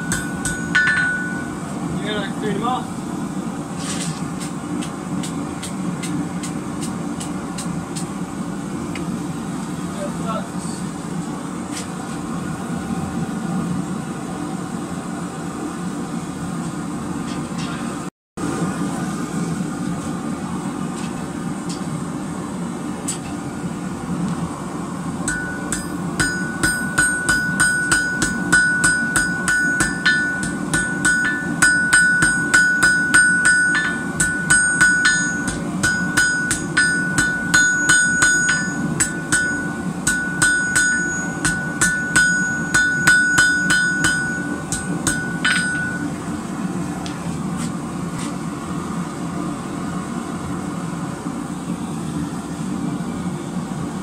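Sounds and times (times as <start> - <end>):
hammer striking metal on anvil: 0.0 - 1.7, 25.3 - 46.2
gas forge burner rushing: 10.5 - 50.1.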